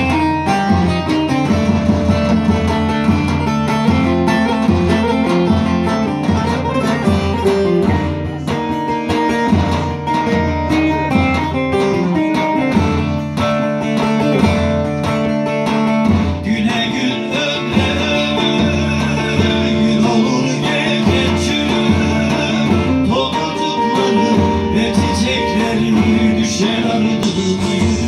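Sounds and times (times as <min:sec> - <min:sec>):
band accompaniment: 0:00.0 - 0:28.0
plucked long-necked lute: 0:00.0 - 0:28.0
man singing: 0:10.4 - 0:12.6, 0:16.3 - 0:28.0.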